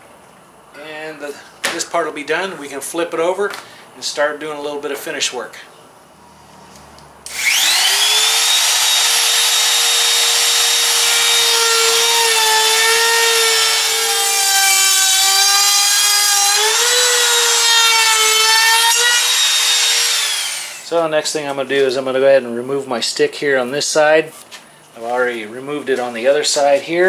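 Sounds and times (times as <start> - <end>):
trim router whining: 7.3 - 20.9.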